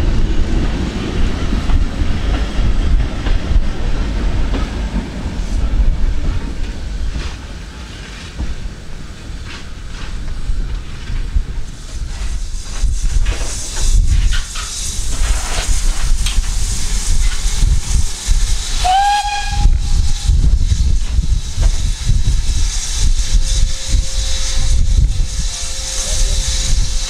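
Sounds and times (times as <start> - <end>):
steam hiss: 0.1 - 27.0
heavy low rumble: 8.4 - 27.0
steam locomotive whistle: 18.8 - 20.4.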